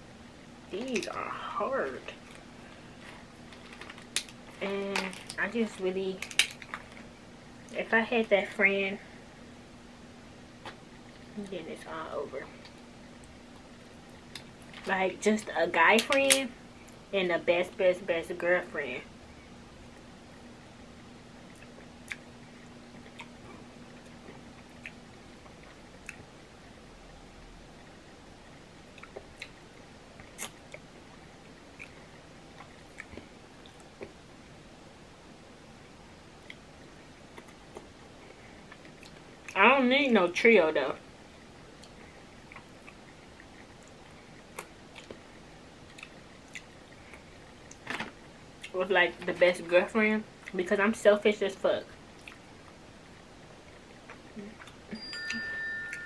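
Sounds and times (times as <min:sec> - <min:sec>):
shellfish shell crackling: 0:06.1 - 0:07.1.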